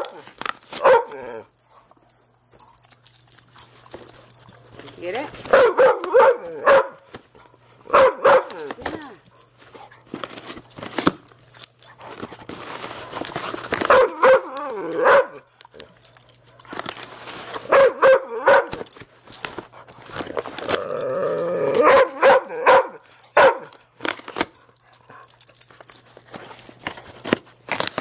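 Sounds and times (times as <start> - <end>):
dog yipping and whining: 13.9 - 15.5, 17.7 - 18.8, 20.8 - 23.7.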